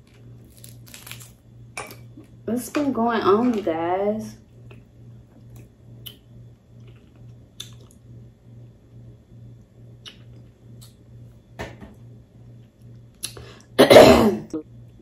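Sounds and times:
low steady hum: 0:00.0 - 0:15.0
quiet chewing: 0:06.8 - 0:08.0.

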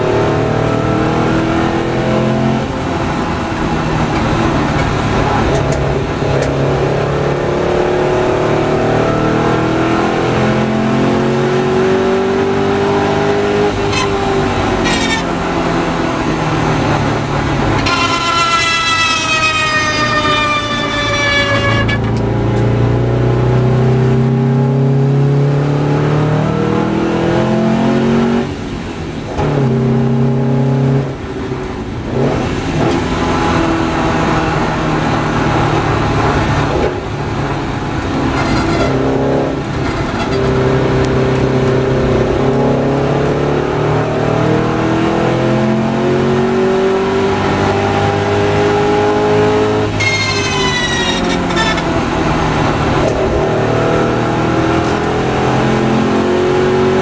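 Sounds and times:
car engine accelerating hard: 0:00.0 - 0:57.0.

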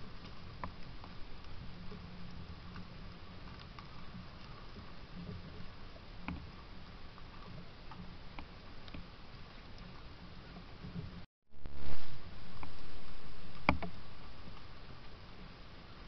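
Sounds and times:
outdoor hiss and low rumble: 0:00.0 - 0:16.0
faint ticks and taps: 0:00.2 - 0:09.1.

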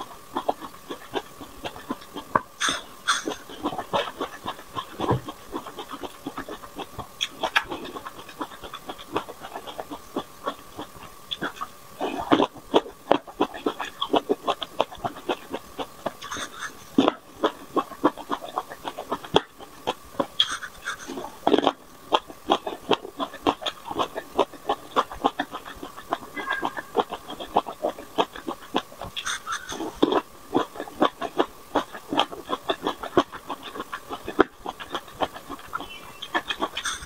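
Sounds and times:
biting and chewing: 0:00.0 - 0:37.0
faint steady high tone: 0:26.3 - 0:27.2.

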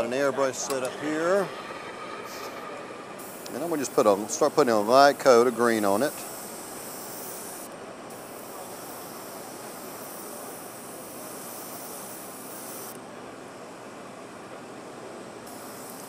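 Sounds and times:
steady background noise: 0:00.0 - 0:16.0
airbrush hissing: 0:02.2 - 0:13.0, 0:15.5 - 0:16.0.

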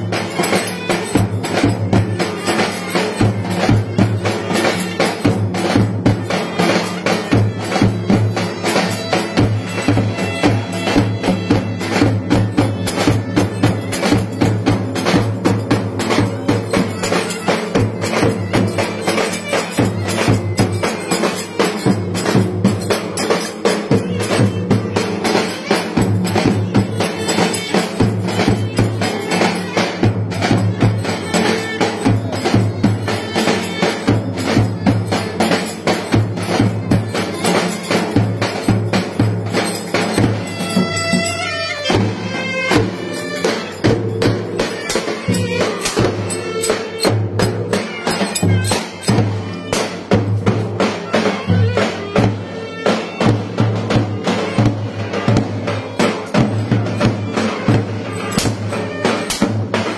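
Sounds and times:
clarinets playing lively melody: 0:39.9 - 0:49.8.

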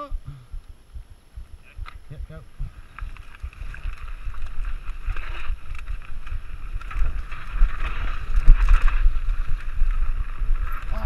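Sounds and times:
wind buffeting microphone: 0:00.0 - 0:11.0
tyres running over dirt: 0:02.8 - 0:11.0
bike knocks and rattles: 0:03.1 - 0:11.0.

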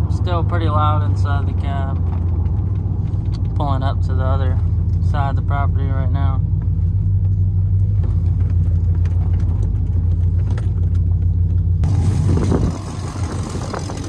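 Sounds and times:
loud low exhaust drone: 0:02.9 - 0:14.0.

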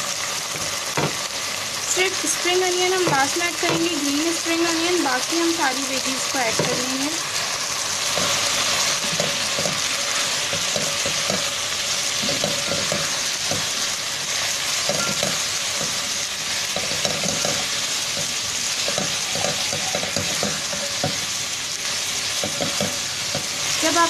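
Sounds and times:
food sizzling in oil: 0:00.0 - 0:24.0
spatula scraping pan: 0:06.5 - 0:21.3, 0:22.3 - 0:23.7.

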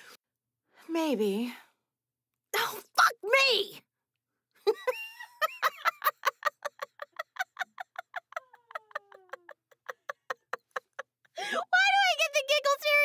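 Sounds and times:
woman giggling: 0:04.7 - 0:11.5.

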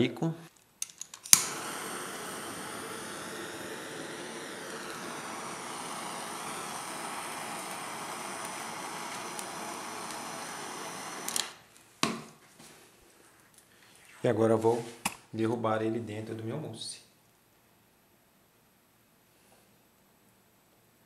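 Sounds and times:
blowtorch flame hissing: 0:01.3 - 0:11.7.

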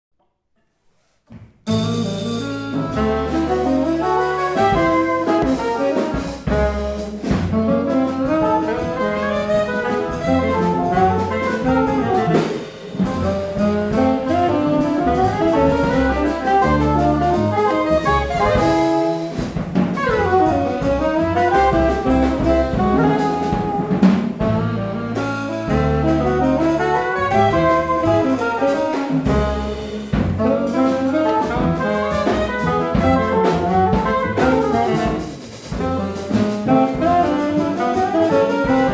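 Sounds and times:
walking double bass: 0:01.3 - 0:38.9
drum kit: 0:01.6 - 0:38.9
saxophones playing: 0:01.8 - 0:19.4, 0:20.0 - 0:38.9.

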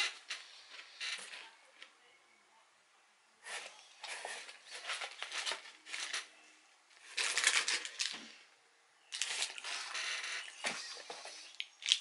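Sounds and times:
plastic wrapper crinkling: 0:07.0 - 0:08.3, 0:09.1 - 0:10.9, 0:11.5 - 0:12.0.

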